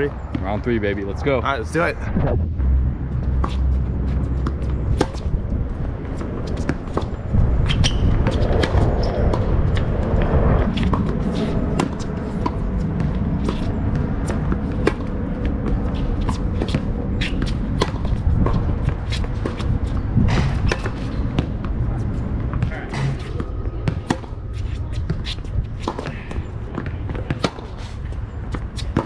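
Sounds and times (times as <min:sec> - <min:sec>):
steady low rumble: 0:00.0 - 0:29.0
shoes scuffing on court: 0:03.3 - 0:05.3, 0:10.6 - 0:29.0
tennis ball bouncing: 0:03.3 - 0:05.4, 0:06.0 - 0:09.9, 0:10.6 - 0:29.0
racket striking tennis ball: 0:04.4 - 0:05.3, 0:10.8 - 0:21.8, 0:22.5 - 0:29.0.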